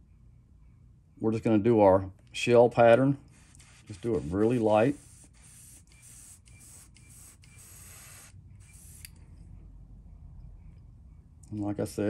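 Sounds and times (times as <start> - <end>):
airbrush spraying hiss: 3.3 - 9.1.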